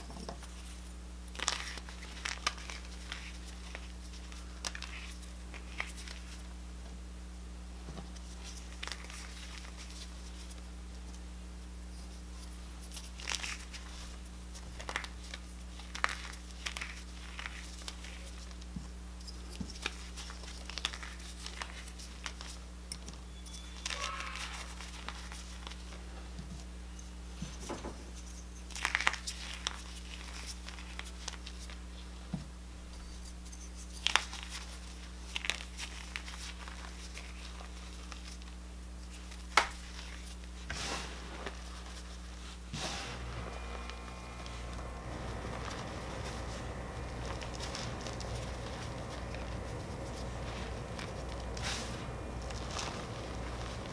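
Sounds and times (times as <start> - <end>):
chalk crunching and crumbling: 0.0 - 6.4, 11.9 - 18.7, 32.8 - 53.9
low hum: 42.7 - 53.9.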